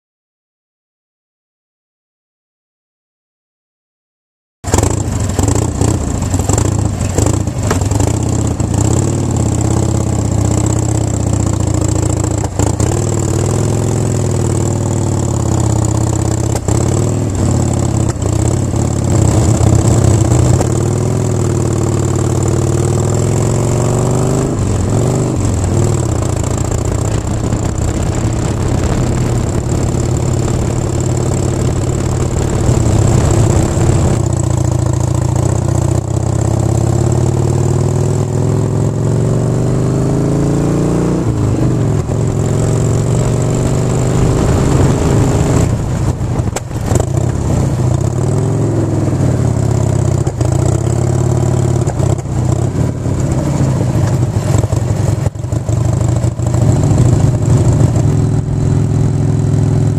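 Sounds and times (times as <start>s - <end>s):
motorcycle engine rumbling: 4.7s - 39.3s, 40.9s - 59.9s
sharp knocks from road: 6.4s - 8.1s, 46.4s - 47.4s, 51.8s - 52.2s.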